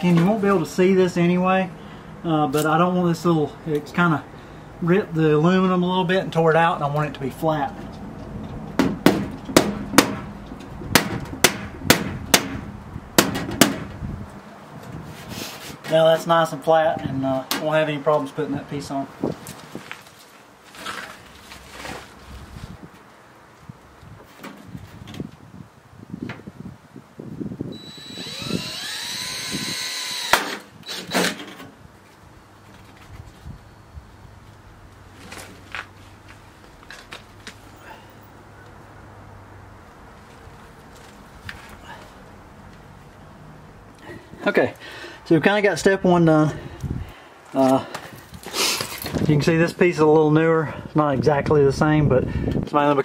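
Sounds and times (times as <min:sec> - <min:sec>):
hammer tapping aluminium: 0:08.8 - 0:10.3, 0:10.9 - 0:13.9
cordless drill whining: 0:27.7 - 0:31.4
drill clutch click: 0:27.8 - 0:31.4.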